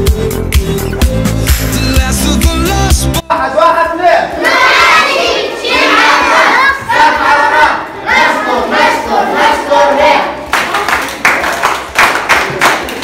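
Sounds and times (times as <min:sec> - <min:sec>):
children shouting a cheer: 0:04.3 - 0:10.9.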